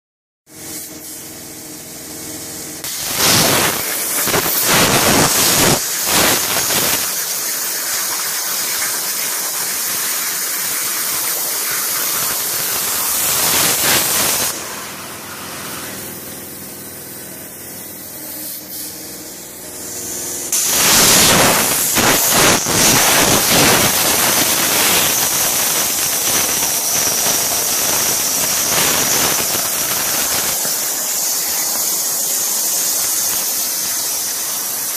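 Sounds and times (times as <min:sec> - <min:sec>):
plasma torch cutting steel: 0:02.8 - 0:16.3, 0:17.9 - 0:34.9
steady high whine: 0:11.9 - 0:32.9.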